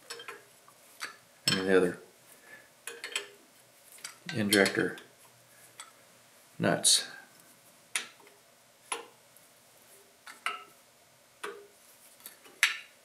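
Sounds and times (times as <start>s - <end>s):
wrenches clicking on metal nuts: 0.0s - 0.4s, 4.0s - 5.0s.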